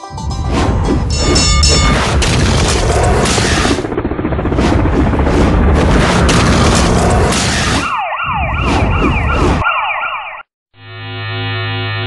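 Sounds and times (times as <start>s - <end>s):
loud rumbling whoosh: 0.5s - 7.8s
falling siren-like wails: 6.9s - 12.0s.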